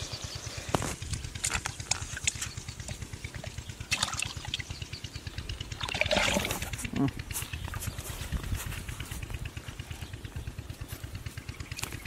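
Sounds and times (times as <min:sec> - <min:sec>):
low steady rumble: 0:00.0 - 0:12.0
mud squelching: 0:00.5 - 0:12.0
water splashing: 0:01.9 - 0:04.8, 0:05.6 - 0:06.8.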